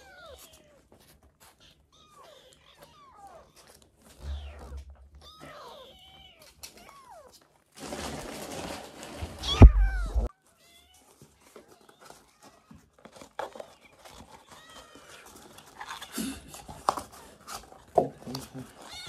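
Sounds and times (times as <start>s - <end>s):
kittens mewing: 0.0s - 7.4s, 9.4s - 10.3s.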